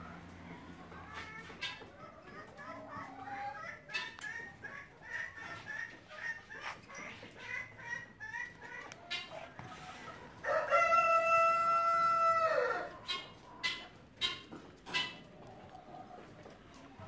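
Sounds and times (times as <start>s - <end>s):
rooster crowing: 10.5s - 12.9s.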